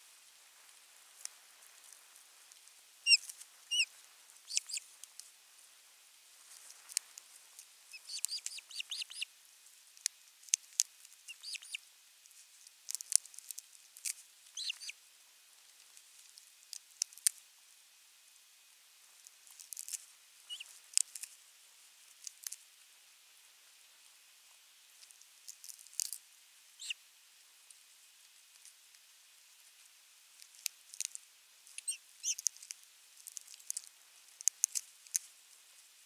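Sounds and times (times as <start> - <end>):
ospreys chirping: 3.0 - 4.9, 7.9 - 9.3, 11.3 - 11.8, 14.5 - 15.0, 20.5 - 20.7, 26.8 - 27.0, 31.8 - 32.5.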